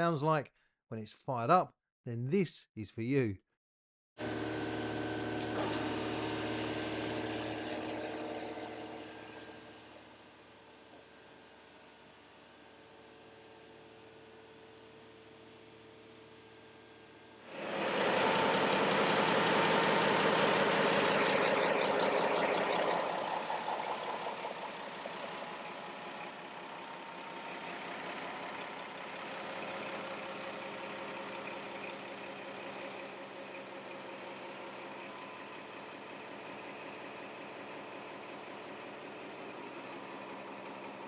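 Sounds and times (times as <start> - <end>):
marine diesel engine starting and idling: 4.2 - 11.6, 17.5 - 41.0.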